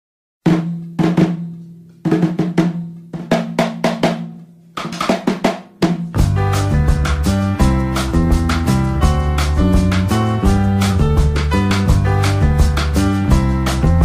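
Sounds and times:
drum hits: 0.5s - 14.0s
backing track with bass and chords: 6.1s - 14.0s.

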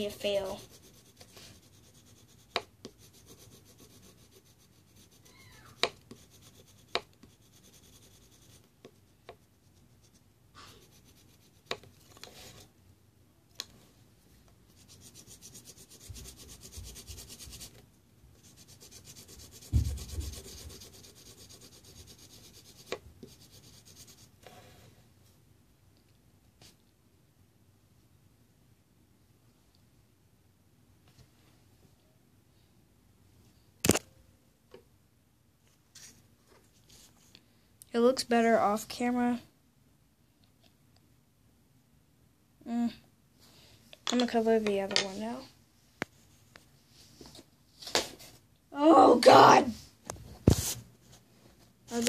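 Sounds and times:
scratchy rubbing and scraping: 0.0s - 12.7s, 14.8s - 17.8s, 18.4s - 24.7s.

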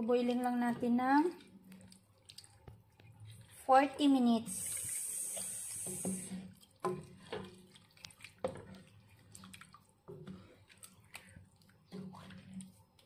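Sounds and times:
spatula stirring thick sauce: 0.0s - 13.0s
hiss: 4.7s - 6.3s.

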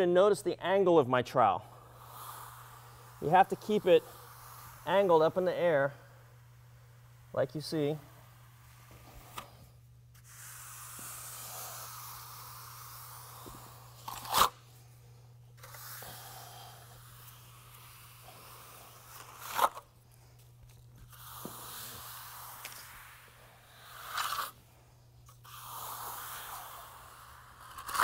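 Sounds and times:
trowel scraping across concrete: 15.6s - 19.8s, 21.1s - 24.6s.

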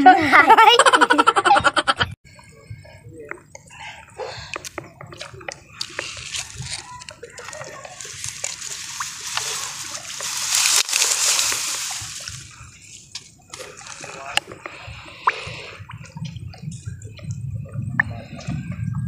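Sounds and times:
water sloshing and splashing: 4.6s - 19.0s.

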